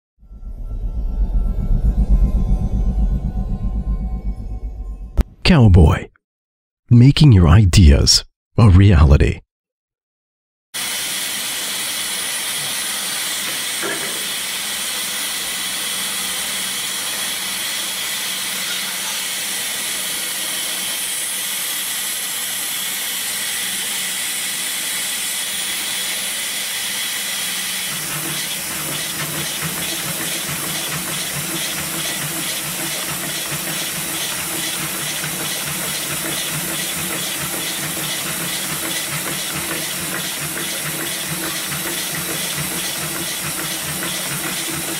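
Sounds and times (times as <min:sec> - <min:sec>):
sewing machine stitching leather: 0:27.4 - 0:44.9.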